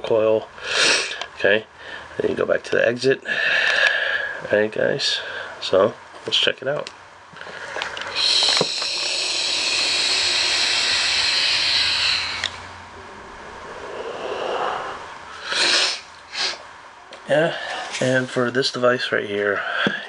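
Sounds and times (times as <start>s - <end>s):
soft exhale: 7.4s - 12.7s, 13.5s - 16.6s
airy hiss of electronic cigarette draw: 7.8s - 12.7s, 13.8s - 16.6s
short sniffs: 8.1s - 12.6s, 14.5s - 16.6s.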